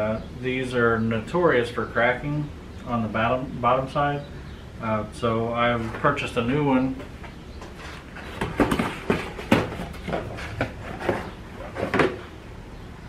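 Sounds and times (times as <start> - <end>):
plastic tank knocks and rustles: 8.2 - 12.3.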